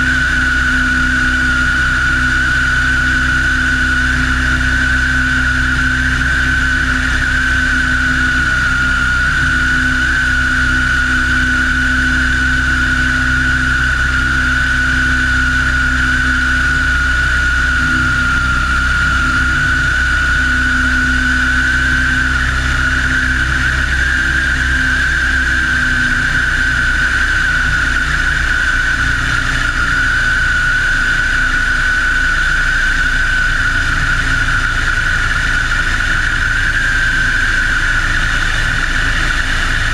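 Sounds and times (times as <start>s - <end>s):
biplane engine droning in flight: 0.0s - 39.9s.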